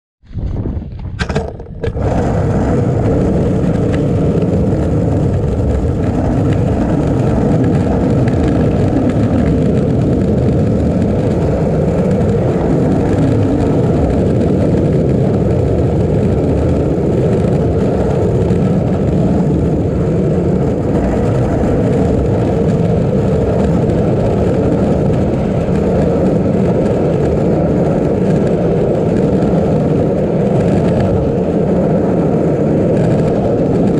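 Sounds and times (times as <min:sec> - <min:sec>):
skateboard wheels rolling on asphalt: 0:00.2 - 0:33.9.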